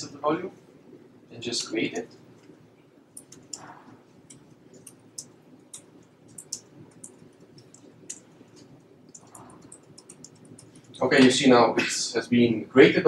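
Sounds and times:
low room hum: 0.0 - 13.0
laptop keys clicking: 3.1 - 11.0.

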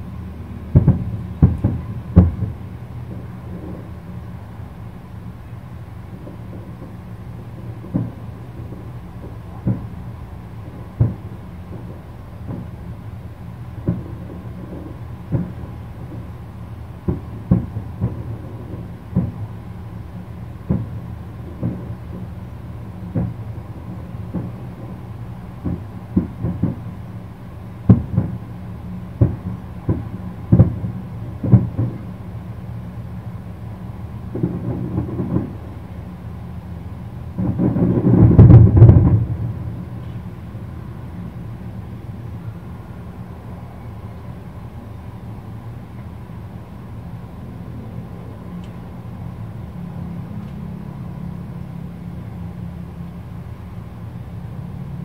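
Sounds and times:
low background rumble: 0.0 - 55.0
distant firework booms: 0.7 - 4.0, 6.1 - 12.9, 13.8 - 16.3, 17.0 - 19.6, 20.6 - 22.4, 23.0 - 27.0, 27.8 - 28.5, 29.2 - 32.2, 34.2 - 35.8, 37.3 - 40.6.

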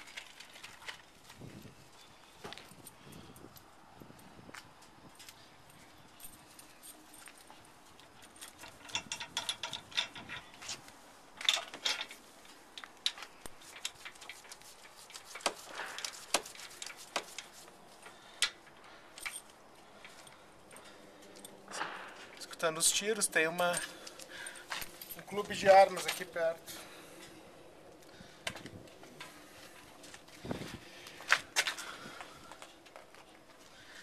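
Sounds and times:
metal clinks and rattles: 5.7 - 26.6.

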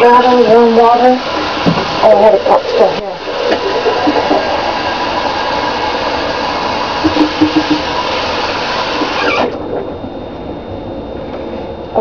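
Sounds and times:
water running from faucet: 0.0 - 9.6.

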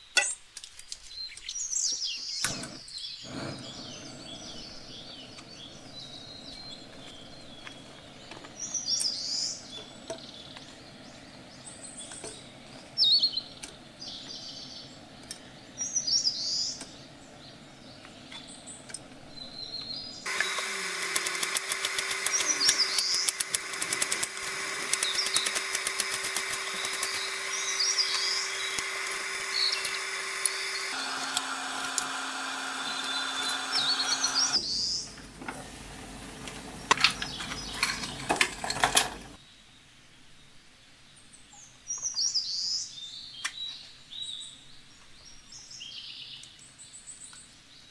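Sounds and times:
birds chirping: 1.0 - 39.6
steady hum with overtones: 2.6 - 38.5
small clicks: 19.8 - 34.6.

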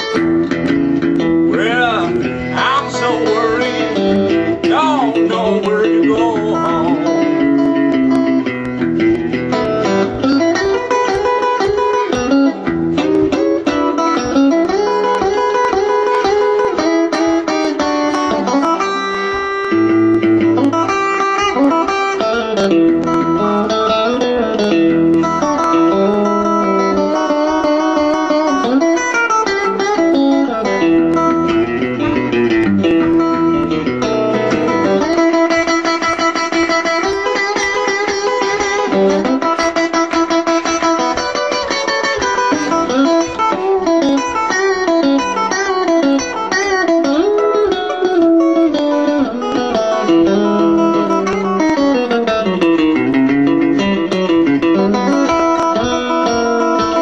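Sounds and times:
electric guitar playing blues: 0.0 - 57.0
harmonica bending notes: 0.0 - 57.0.

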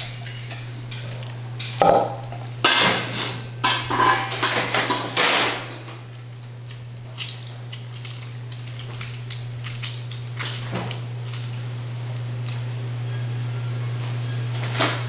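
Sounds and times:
steady low hum: 0.0 - 4.7
steel bowl clattering on wood: 1.0 - 2.9, 3.7 - 5.4
juice dripping into bowl: 6.0 - 12.7.

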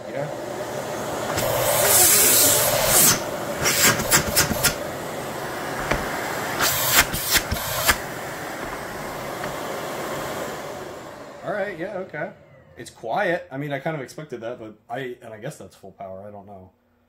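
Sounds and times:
vacuum cleaner motor running: 0.0 - 13.8
knocks and clicks on wooden bench: 5.8 - 6.2.

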